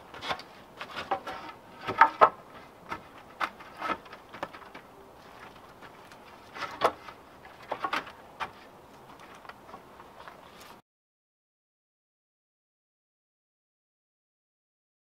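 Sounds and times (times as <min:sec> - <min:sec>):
wooden sticks knocking and clacking: 0:00.1 - 0:10.4.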